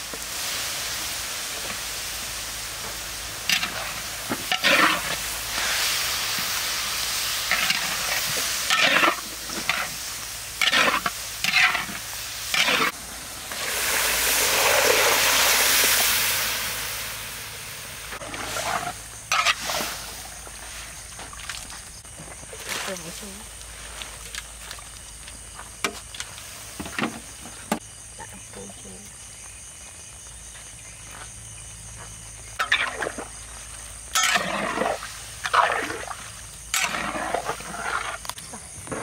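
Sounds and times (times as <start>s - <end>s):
food sizzling in a pan: 0.0s - 21.4s, 32.6s - 38.4s.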